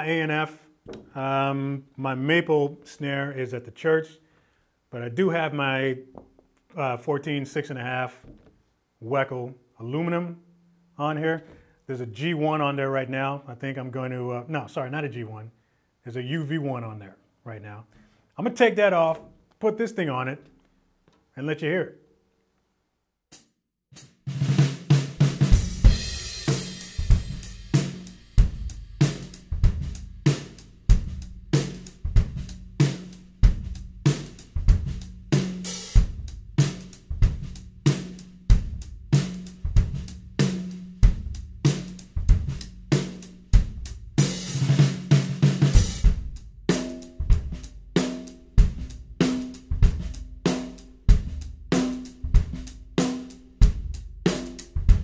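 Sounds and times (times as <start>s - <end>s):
drum kit groove: 23.3s - 55.0s.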